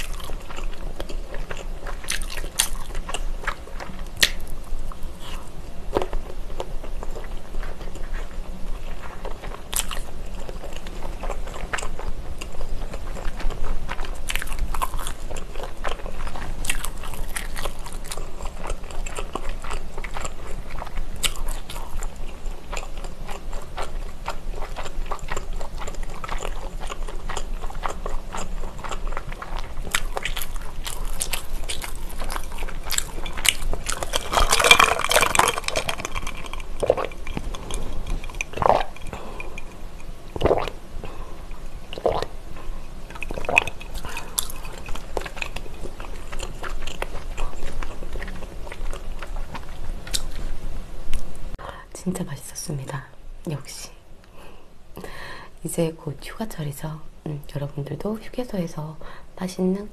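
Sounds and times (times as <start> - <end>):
close chewing with wet clicks: 0.0 - 51.2
swallowing: 22.7 - 50.3.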